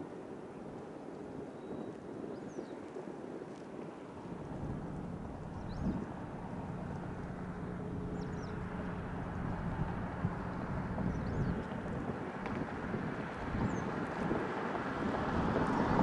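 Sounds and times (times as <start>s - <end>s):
wind noise on microphone: 0.0s - 16.0s
low hum: 4.1s - 15.9s
boat engine running: 4.2s - 16.0s.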